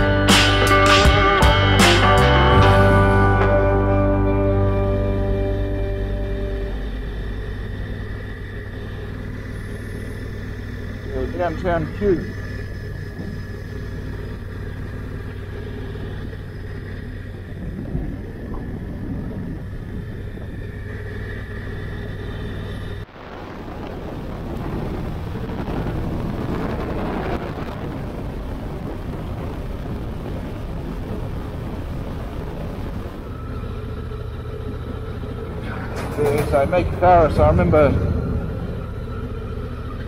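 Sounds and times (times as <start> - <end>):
motorcycle engine running: 0.0 - 23.0, 24.4 - 40.0
wind rushing over microphone: 16.1 - 33.4, 35.5 - 40.0.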